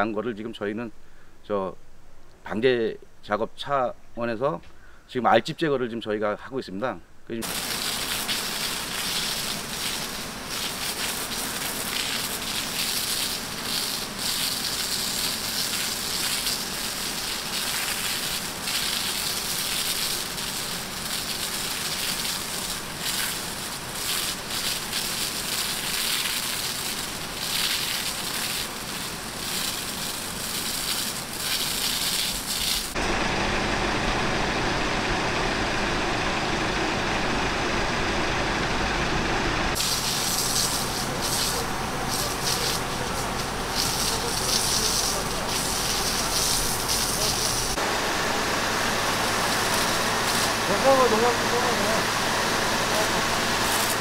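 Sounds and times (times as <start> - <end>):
high-pressure spray hissing: 7.4 - 33.0, 39.8 - 54.0
spray spattering on tree bark: 7.4 - 33.0, 39.8 - 47.9, 48.6 - 54.0.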